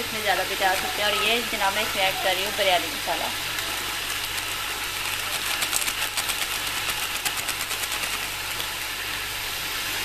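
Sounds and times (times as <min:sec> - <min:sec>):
food frying in oil: 0:00.0 - 0:10.0.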